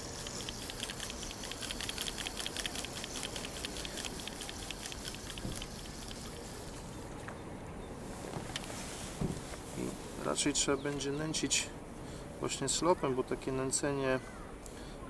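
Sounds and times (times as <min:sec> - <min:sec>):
fishing reel ticking: 0:00.0 - 0:06.4.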